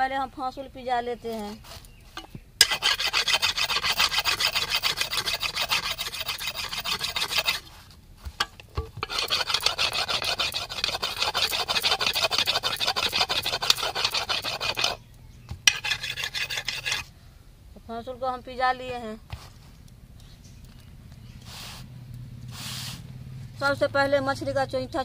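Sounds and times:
stone scraping metal blade: 1.4 - 15.0, 15.6 - 17.1.

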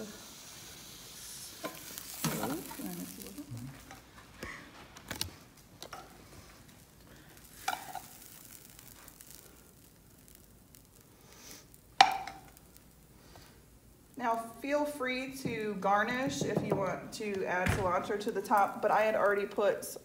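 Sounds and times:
rice sizzling in oil: 0.0 - 16.3, 17.9 - 20.0
metal spoon scraping a pan: 7.6 - 8.3.

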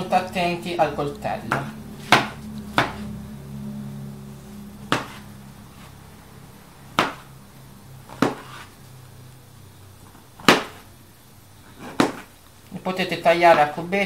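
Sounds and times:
knife chopping on cutting board: 1.5 - 3.0, 4.9 - 5.2, 7.0 - 7.3, 8.1 - 8.7, 10.4 - 10.8, 11.8 - 12.3.

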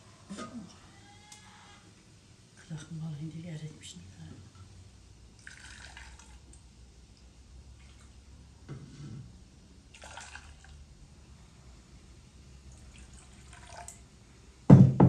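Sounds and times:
milk splashing into saucepan: 5.4 - 6.5, 9.9 - 10.8, 12.8 - 14.0.

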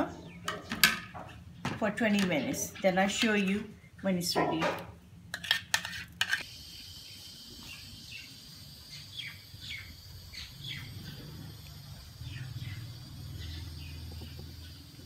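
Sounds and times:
birds chirping: 0.0 - 3.0, 7.0 - 15.0.

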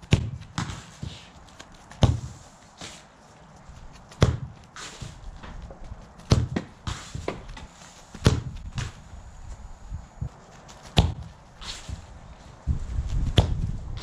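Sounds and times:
football kicked hard: 0.0 - 1.1, 2.0 - 2.4, 4.2 - 4.6, 6.3 - 7.5, 8.2 - 9.0, 11.0 - 11.3, 13.2 - 14.0.

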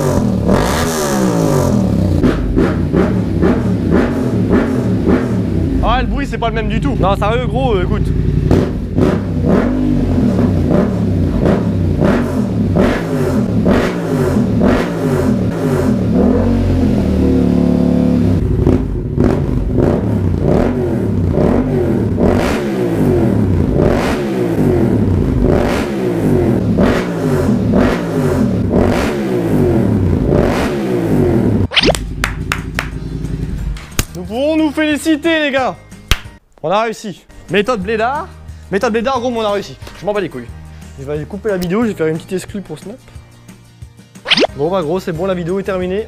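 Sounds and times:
motorcycle engine revving: 0.0 - 33.7.

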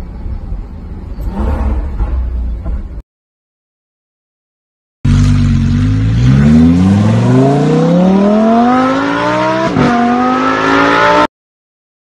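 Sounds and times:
sports car engine accelerating: 5.1 - 11.3.

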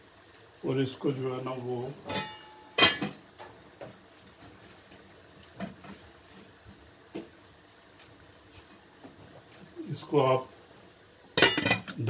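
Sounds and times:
metallic clank on steel pan: 2.1 - 3.2, 11.4 - 12.0
faint ticks of food cooking: 3.2 - 9.8.

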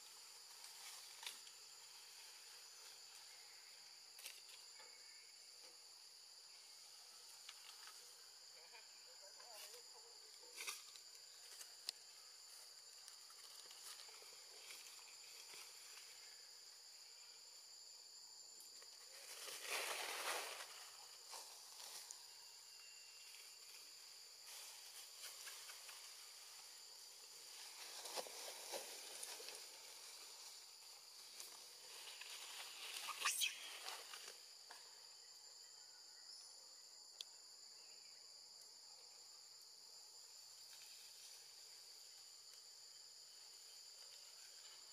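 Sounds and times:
insect drone: 0.0 - 44.9
rustling noise: 19.1 - 22.0, 27.3 - 34.3.

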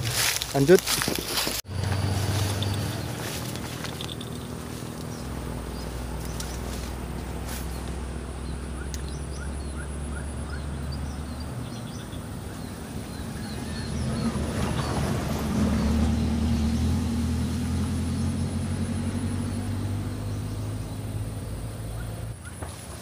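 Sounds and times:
small birds chirping: 1.6 - 22.6
engine drone: 1.6 - 23.0.

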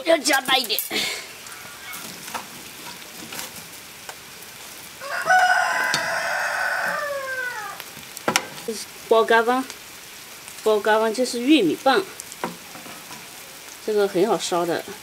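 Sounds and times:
rooster crowing: 1.4 - 2.3, 5.0 - 7.9
wood knocking in stove firebox: 5.8 - 6.2, 8.2 - 8.7, 12.4 - 13.2.

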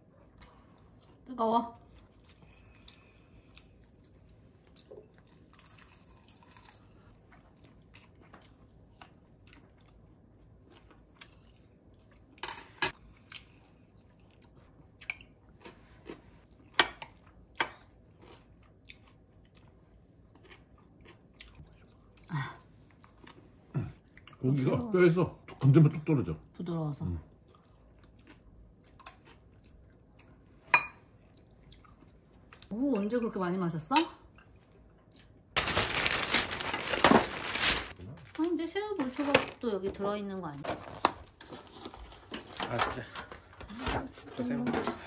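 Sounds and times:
quiet chewing: 18.1 - 24.4, 27.4 - 30.6, 31.2 - 32.7, 34.3 - 35.4.

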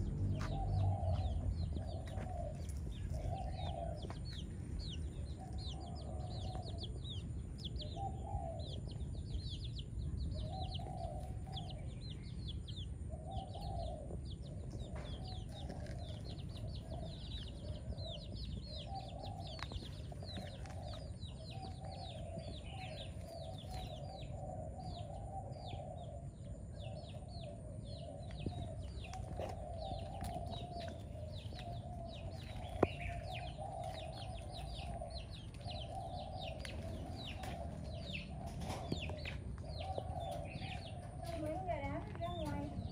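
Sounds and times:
low steady rumble: 0.0 - 5.7
chicks peeping: 0.0 - 42.9.

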